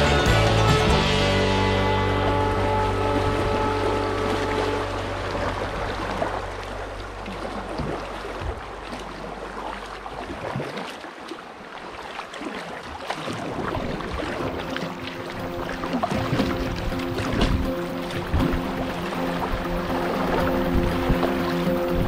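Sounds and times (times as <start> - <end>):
background music: 0.0 - 7.2, 14.4 - 22.0
kayak paddle splashes: 0.2 - 22.0
river water rushing: 1.2 - 22.0.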